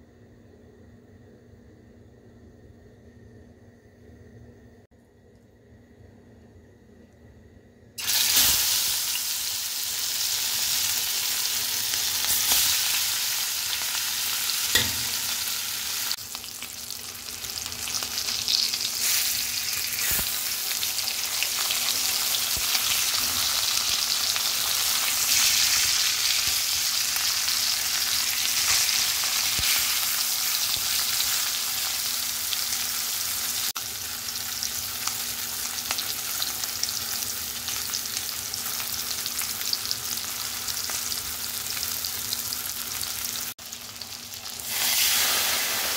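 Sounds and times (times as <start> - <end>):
fish sizzling in hot oil: 8.0 - 45.9
metal spoon clicking on pan: 14.7 - 15.2.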